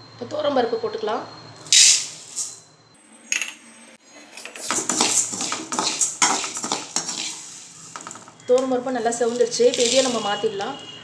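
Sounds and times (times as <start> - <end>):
spoon scraping pan: 4.4 - 10.4
lentils rattling in metal pan: 4.6 - 10.4.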